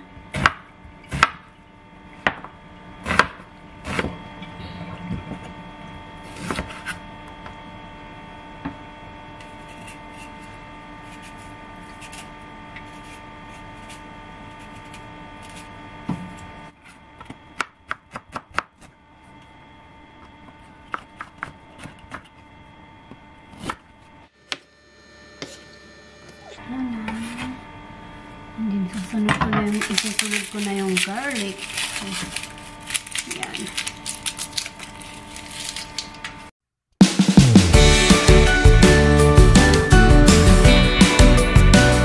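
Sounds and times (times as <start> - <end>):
knife scrapes: 9.5 - 15.8.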